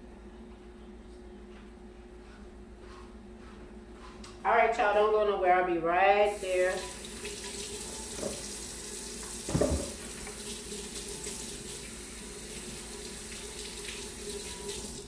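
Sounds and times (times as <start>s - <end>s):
tap water running into sink: 6.3s - 15.0s.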